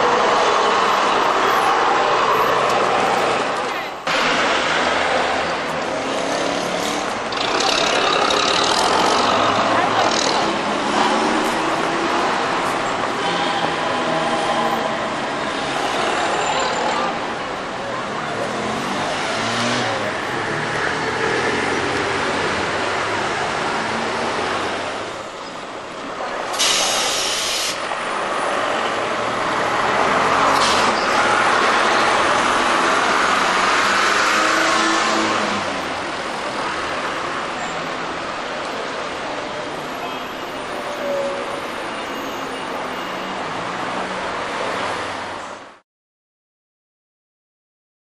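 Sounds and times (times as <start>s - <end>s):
traffic passing: 0.0s - 45.8s
sharp hiss: 26.6s - 27.8s.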